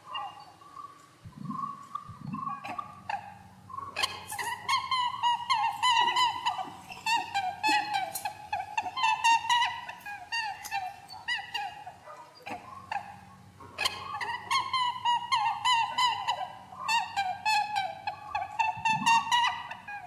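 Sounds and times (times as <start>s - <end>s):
bird-like chirps and squeaks: 18.4s - 19.8s.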